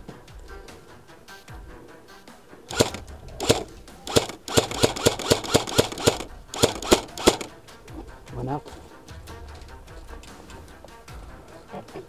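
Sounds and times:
quiet background music: 0.0s - 12.0s
airsoft rifle shots: 2.7s - 7.6s.

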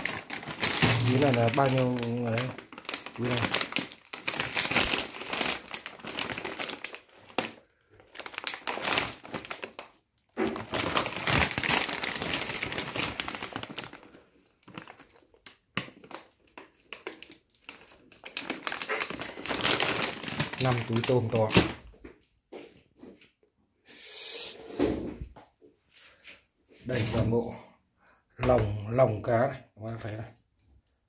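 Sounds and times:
plastic bags crinkling: 0.0s - 22.0s.

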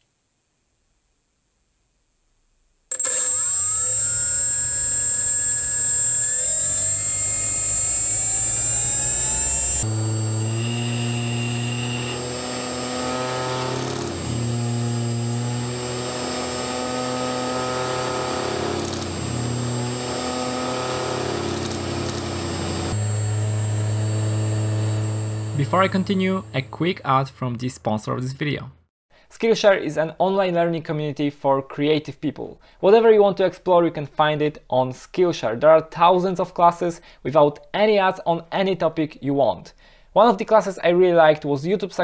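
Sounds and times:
duct fan whirring and whining: 2.9s - 26.8s.

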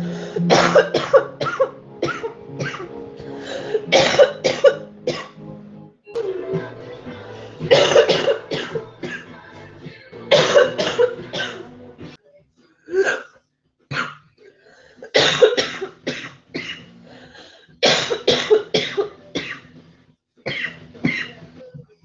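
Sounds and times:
women coughing harshly: 0.4s - 3.0s, 3.8s - 5.4s, 7.7s - 9.2s, 10.3s - 11.7s, 15.0s - 16.9s, 17.8s - 19.6s, 20.5s - 21.4s.

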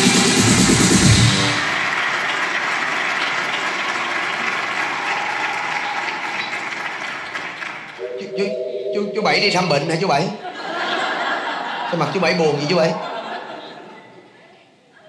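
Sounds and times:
audience applauding: 1.0s - 8.5s.

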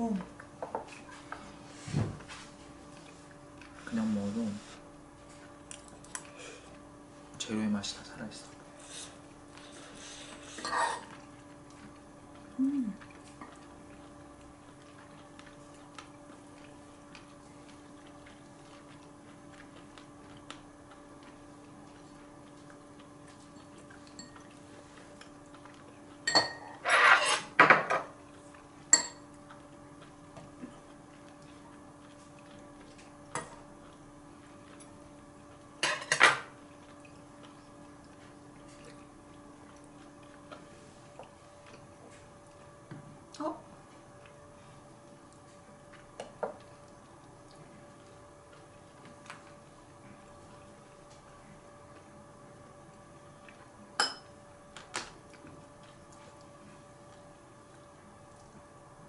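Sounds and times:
faint steady hum: 0.0s - 59.0s
utensils clinking on bowls: 23.5s - 24.5s, 26.2s - 28.1s, 28.9s - 29.3s.

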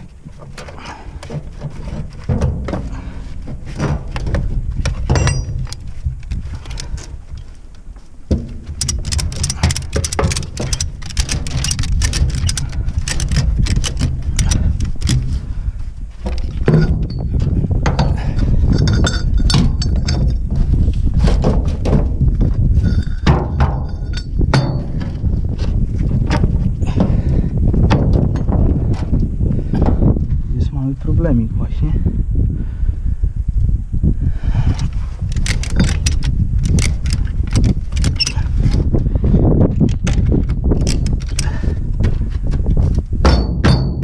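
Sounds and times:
steady low rumble: 0.0s - 44.0s
metallic clanks and knocks from tools: 3.8s - 7.1s, 8.3s - 15.4s, 16.2s - 20.5s, 22.8s - 25.2s, 35.3s - 38.8s, 43.2s - 44.0s.

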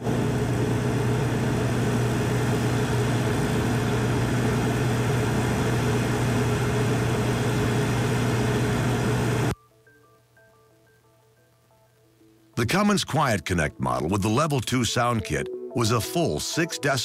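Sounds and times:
generator engine drone: 0.0s - 9.5s.

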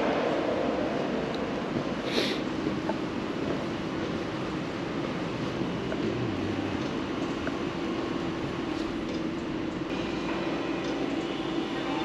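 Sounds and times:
constant low hum: 2.6s - 12.0s.

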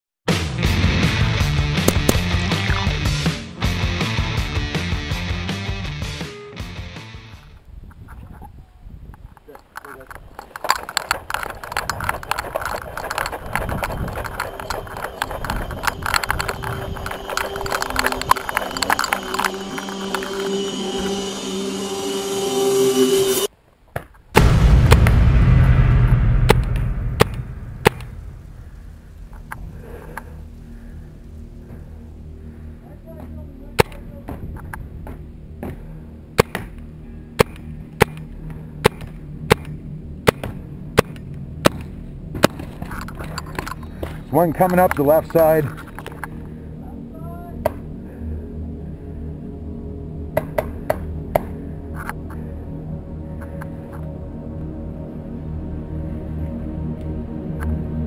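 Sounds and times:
gear rattling: 9.4s - 20.7s
paintball marker firing: 36.4s - 36.8s, 37.4s - 42.7s.

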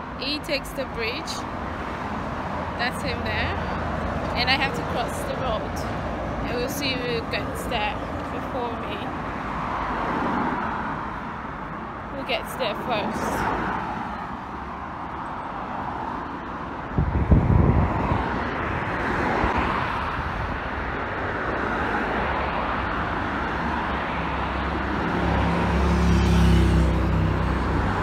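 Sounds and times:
cars passing: 0.0s - 28.0s
wind on microphone: 16.8s - 21.3s.

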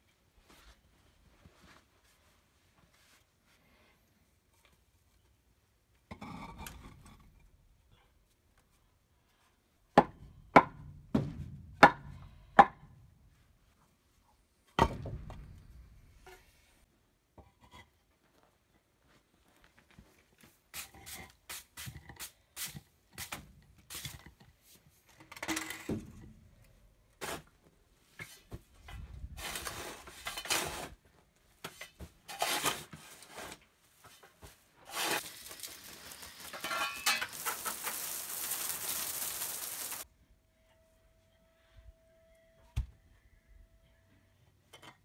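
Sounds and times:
shovel scraping and throwing soil: 27.2s - 27.5s, 28.2s - 31.0s, 31.6s - 33.7s, 34.8s - 40.0s
concrete pavers knocking and scraping: 34.9s - 40.0s
garden hose spraying: 34.9s - 40.1s.

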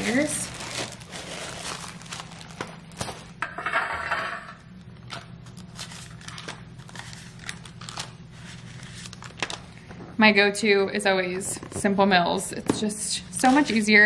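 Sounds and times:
plastic wrapper crinkling: 0.0s - 3.4s, 5.4s - 9.9s.

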